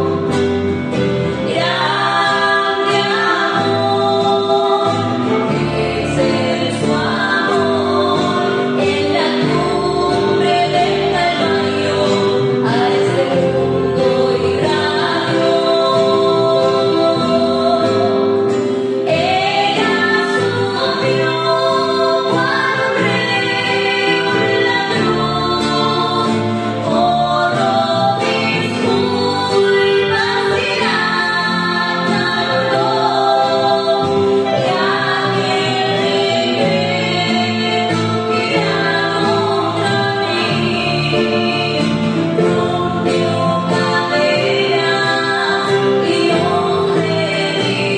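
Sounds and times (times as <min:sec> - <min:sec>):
strummed acoustic guitar: 0:00.0 - 0:47.9
women singing in harmony: 0:00.0 - 0:47.9.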